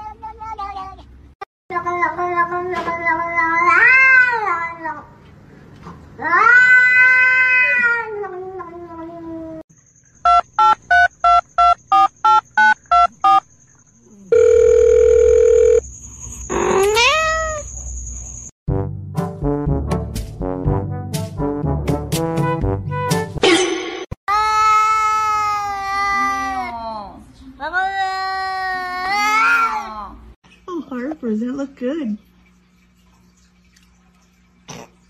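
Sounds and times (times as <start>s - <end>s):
held electronic tone: 10.2s - 13.4s
short electronic beeps: 10.2s - 13.5s
cat meowing: 16.8s - 17.6s.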